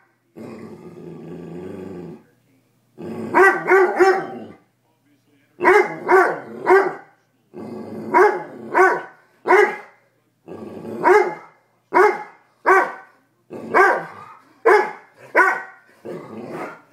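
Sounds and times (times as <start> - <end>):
dog growling: 0.3 - 2.3, 3.0 - 4.6, 5.6 - 9.0, 10.4 - 11.5, 13.5 - 16.9
dog barking: 3.3 - 4.5, 5.6 - 7.1, 8.1 - 10.0, 11.0 - 15.9.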